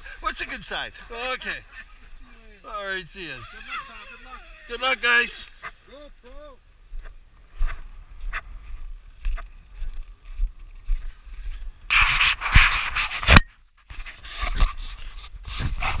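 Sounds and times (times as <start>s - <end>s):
footsteps crunching on snow: 0.0s - 16.0s
rustling on microphone: 6.9s - 16.0s.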